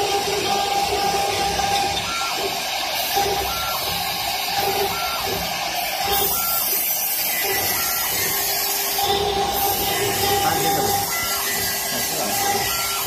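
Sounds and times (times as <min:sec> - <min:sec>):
wood lathe cutting: 0:00.0 - 0:13.0.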